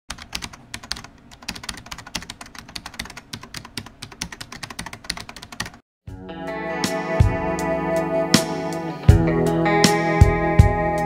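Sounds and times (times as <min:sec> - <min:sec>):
keyboard typing clicks: 0:00.1 - 0:05.8.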